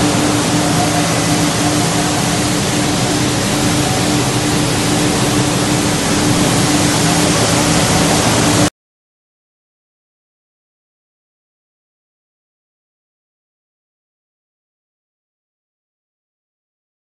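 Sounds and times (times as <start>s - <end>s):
industrial machine humming: 0.0s - 8.7s.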